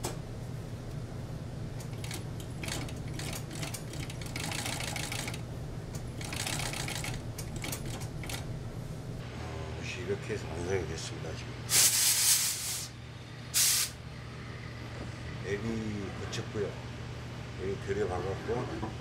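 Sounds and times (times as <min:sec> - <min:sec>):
sewing machine motor hum: 0:01.8 - 0:08.5
rapid machine stitching: 0:01.9 - 0:05.4, 0:06.2 - 0:08.4.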